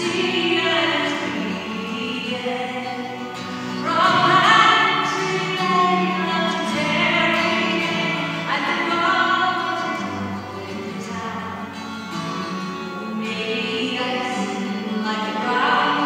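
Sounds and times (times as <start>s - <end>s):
woman singing: 0.0s - 11.8s, 12.6s - 16.0s
strummed acoustic guitar: 0.0s - 16.0s.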